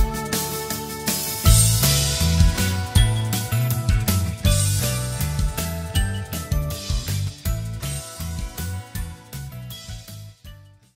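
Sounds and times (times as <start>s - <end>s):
music with bass beat: 0.0s - 10.9s.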